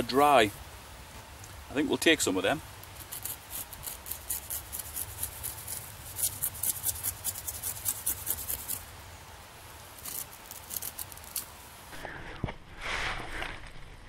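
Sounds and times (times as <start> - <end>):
knife scraping tree bark: 2.8 - 8.9, 9.9 - 11.6.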